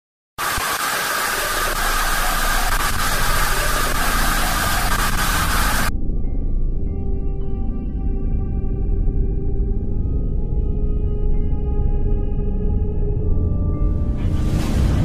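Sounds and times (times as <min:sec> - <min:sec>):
loud static hiss: 0:00.4 - 0:05.9
eerie music: 0:01.9 - 0:15.0.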